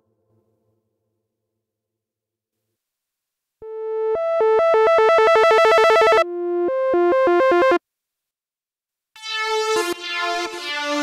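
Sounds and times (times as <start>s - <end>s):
synthesizer warbling tone: 3.6s - 7.8s.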